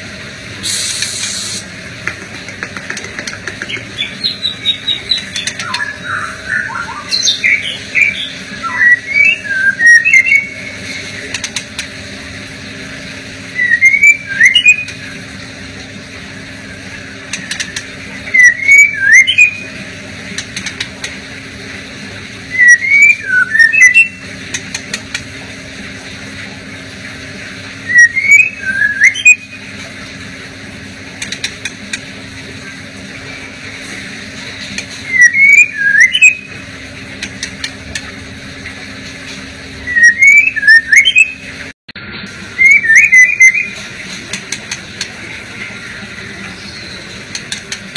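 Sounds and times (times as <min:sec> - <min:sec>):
steady low hum: 0:00.0 - 0:47.9
sharp bird clicks: 0:02.0 - 0:04.1
bird singing whistled notes: 0:04.0 - 0:10.6, 0:13.5 - 0:15.0, 0:18.3 - 0:19.7, 0:22.5 - 0:24.2, 0:27.8 - 0:29.6, 0:35.0 - 0:36.5, 0:39.8 - 0:41.4, 0:42.6 - 0:43.8.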